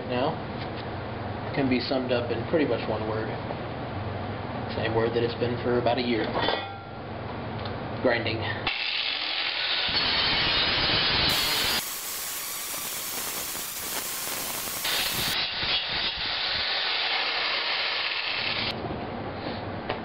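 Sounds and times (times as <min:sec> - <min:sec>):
angle grinder grinding metal: 0:08.7 - 0:18.7.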